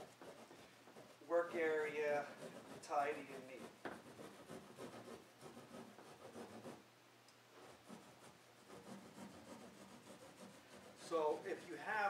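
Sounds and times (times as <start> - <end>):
saw rasping through ceiling tiles: 0.0 - 6.8, 7.6 - 11.7.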